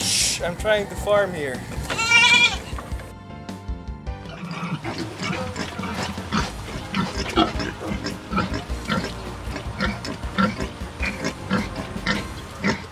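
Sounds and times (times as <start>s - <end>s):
pigs grunting and squeaking: 1.8s - 2.9s, 4.2s - 12.9s.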